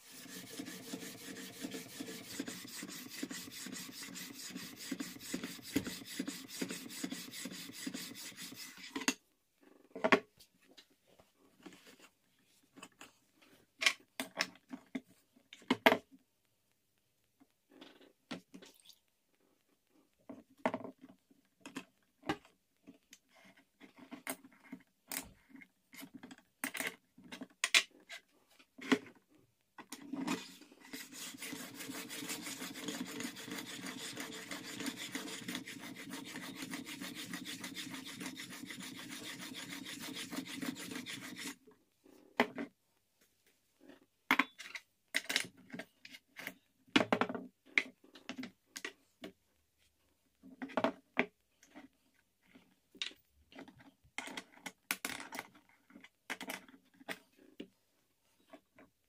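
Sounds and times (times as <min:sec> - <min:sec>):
sharpening stone scraping metal: 0:00.0 - 0:08.8, 0:30.9 - 0:41.6.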